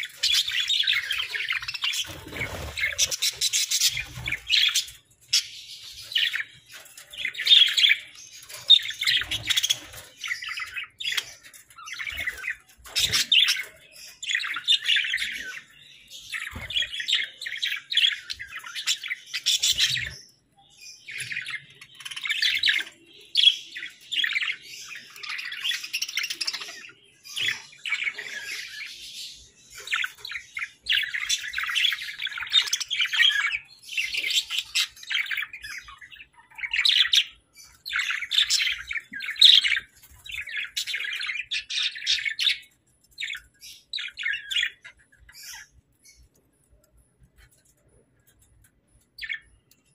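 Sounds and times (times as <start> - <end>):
budgerigars warbling and chirping: 0.0 - 49.9.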